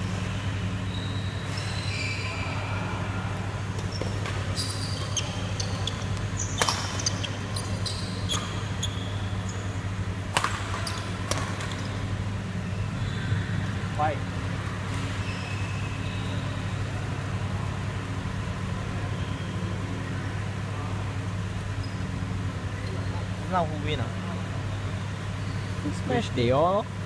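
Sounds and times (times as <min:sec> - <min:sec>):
steady low hum: 0:00.0 - 0:27.0
shoe squeaks on court floor: 0:00.9 - 0:02.4, 0:03.8 - 0:09.8, 0:10.7 - 0:11.9, 0:14.9 - 0:16.6, 0:21.8 - 0:22.2
racket striking shuttlecock: 0:06.1 - 0:07.4, 0:10.2 - 0:11.9.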